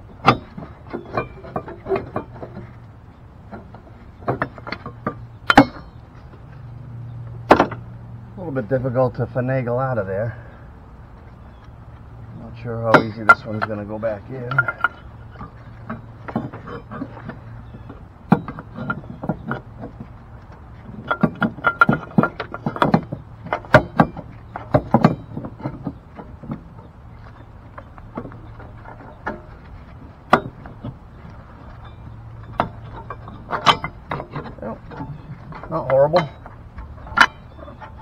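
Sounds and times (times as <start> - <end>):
engine mount knocking and clunking: 0.0 - 8.0, 11.2 - 38.0.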